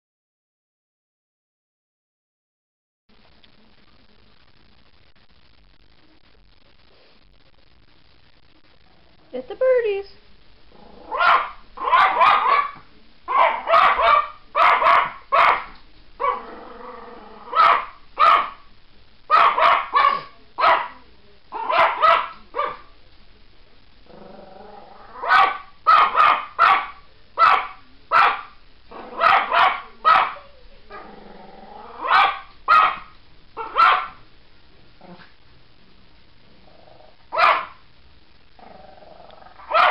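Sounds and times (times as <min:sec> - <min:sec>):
dog growling: 0:10.7 - 0:12.4, 0:16.2 - 0:17.9, 0:24.0 - 0:26.3, 0:28.9 - 0:32.4, 0:35.0 - 0:35.4, 0:36.4 - 0:37.7, 0:38.6 - 0:39.9
dog barking: 0:11.1 - 0:16.4, 0:17.5 - 0:18.6, 0:19.3 - 0:22.9, 0:25.2 - 0:30.5, 0:32.0 - 0:34.2, 0:37.3 - 0:37.8, 0:39.6 - 0:39.9.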